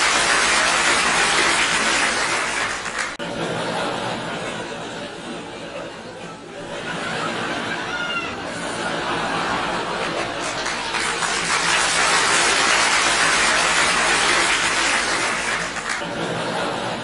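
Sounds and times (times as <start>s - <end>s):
audience applause: 0.0s - 3.2s, 8.1s - 17.0s
audience laughing: 0.0s - 17.0s.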